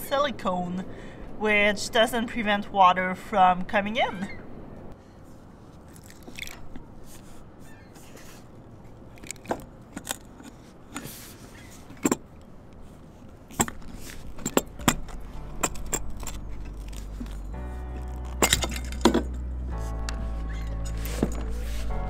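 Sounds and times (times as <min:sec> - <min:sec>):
metallic clicks and knocks: 0:13.5 - 0:17.4.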